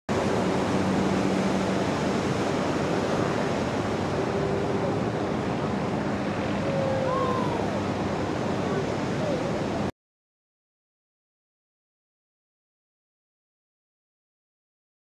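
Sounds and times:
wave breaking: 0.1s - 9.9s
wind buffeting microphone: 0.1s - 9.9s
wind over water: 0.1s - 9.9s.

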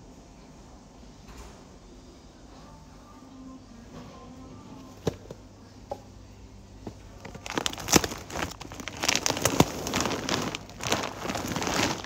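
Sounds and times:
plastic sack crinkling: 7.2s - 12.0s.

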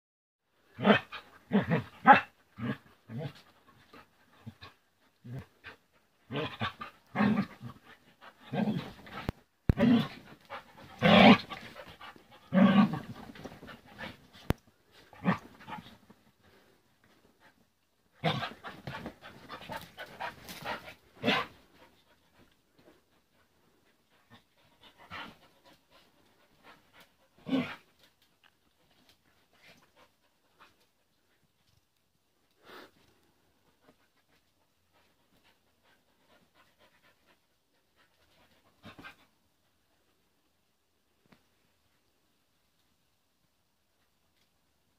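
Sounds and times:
dogs vocalising while play-fighting: 0.8s - 16.2s, 18.2s - 22.5s
dogs panting: 10.1s - 14.6s, 18.2s - 31.0s.

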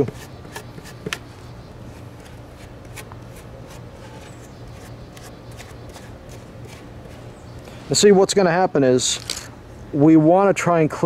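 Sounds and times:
steady low hum: 0.0s - 11.0s
trowel scraping styrofoam: 1.9s - 7.2s.

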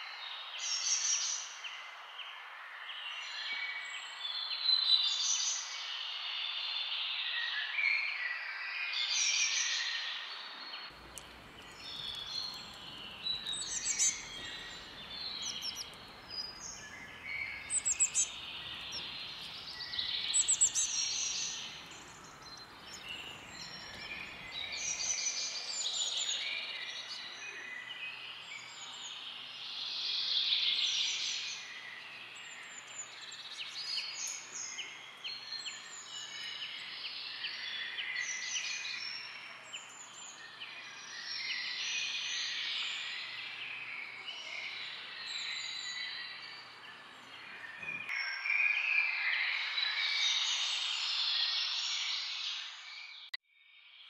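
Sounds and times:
small birds chirping: 9.1s - 53.4s.

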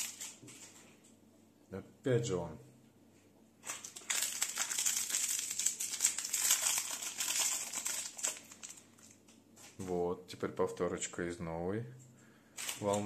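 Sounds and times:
foil packet tearing and crinkling: 0.0s - 0.4s, 3.6s - 9.2s, 12.6s - 13.0s.

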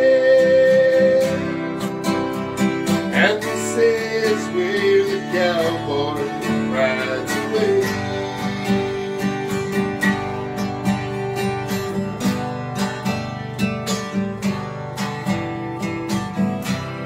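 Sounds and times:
acoustic guitars strumming: 0.0s - 17.0s.

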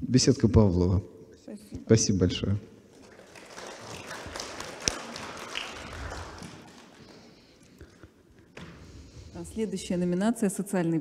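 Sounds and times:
audience applause: 2.9s - 7.5s.

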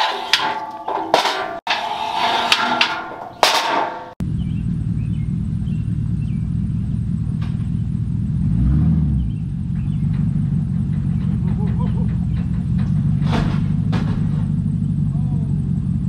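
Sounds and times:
metal ramp clanking: 0.0s - 4.2s, 9.4s - 15.0s
truck engine rumbling: 0.0s - 16.0s.

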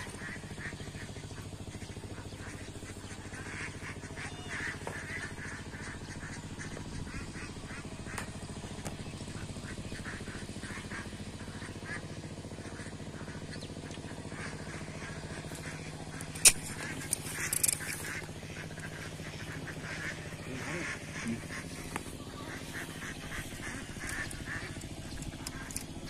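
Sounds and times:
ducks quacking: 0.0s - 26.0s
steady low hum: 0.0s - 26.0s
quick clicks: 16.1s - 18.2s.

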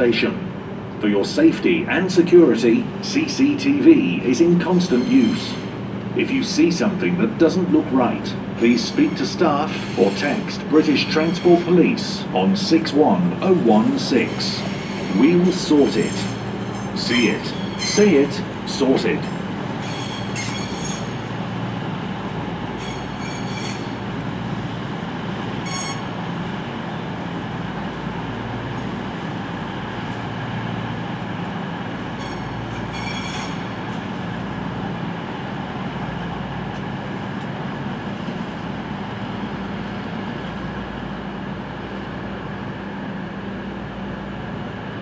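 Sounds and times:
diesel train engines droning: 0.0s - 45.0s
train wheel squeals: 4.7s - 5.8s, 8.7s - 12.1s, 14.0s - 18.4s, 19.7s - 21.3s, 22.7s - 24.0s, 25.6s - 26.2s, 32.2s - 34.0s.

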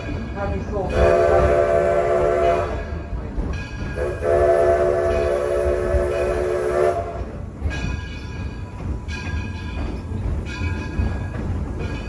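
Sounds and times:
low rumble of train running: 0.0s - 12.0s
steam locomotive whistle: 0.9s - 2.8s, 4.0s - 7.3s.

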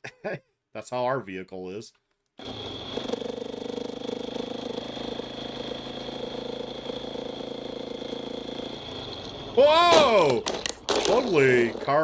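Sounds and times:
motorcycle engine running: 2.4s - 9.8s.

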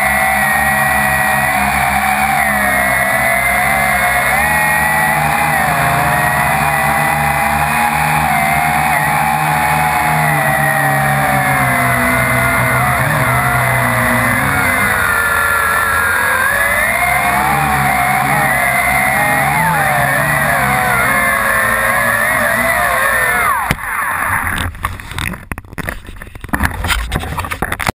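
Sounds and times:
drone motors whining: 0.0s - 24.9s.

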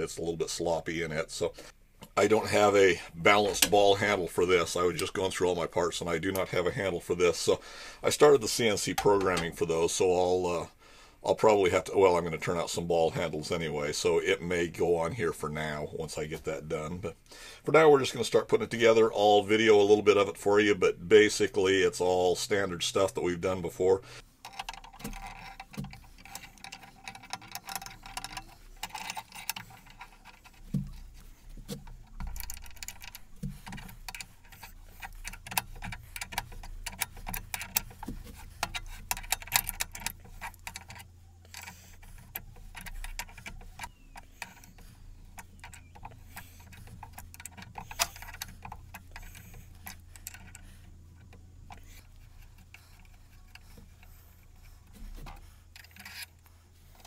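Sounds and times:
small metallic clicks and clinks: 21.3s - 57.0s.

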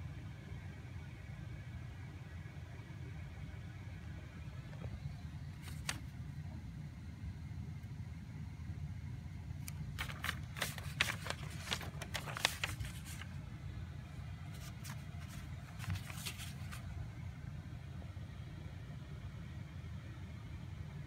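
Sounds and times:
notebook paper rustling: 4.8s - 6.1s, 9.6s - 13.5s, 14.2s - 17.1s.

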